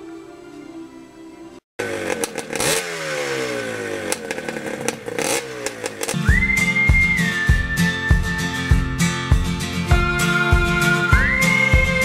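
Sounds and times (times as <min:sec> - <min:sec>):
motorcycle engine revving: 0:01.8 - 0:10.1
music with steady beat: 0:06.2 - 0:12.0.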